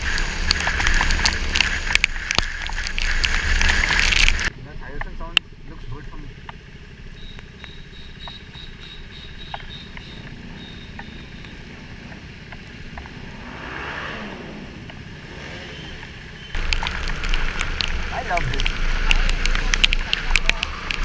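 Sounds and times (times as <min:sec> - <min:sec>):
raindrops ticking on helmet: 0:00.0 - 0:04.5, 0:06.5 - 0:13.2, 0:15.9 - 0:21.0
motorcycle engine idling: 0:00.0 - 0:13.4, 0:14.6 - 0:21.0
passing traffic: 0:00.0 - 0:21.0.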